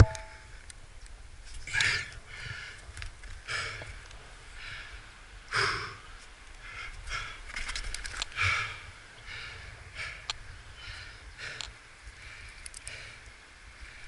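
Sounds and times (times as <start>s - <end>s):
person breathing hard: 1.8s - 7.5s, 8.3s - 14.0s
sharp clicks: 12.6s - 13.0s.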